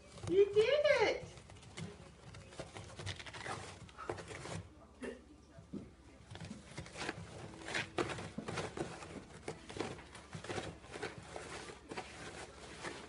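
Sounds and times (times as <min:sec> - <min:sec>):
paper towel rustling: 0:06.3 - 0:13.0.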